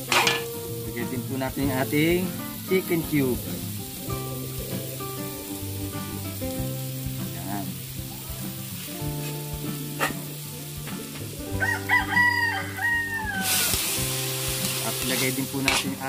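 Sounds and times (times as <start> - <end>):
sharp metal clank: 0.0 - 0.6
background music of sustained notes: 0.0 - 16.0
food sizzling in oil: 0.0 - 16.0
rooster crowing: 11.4 - 13.9.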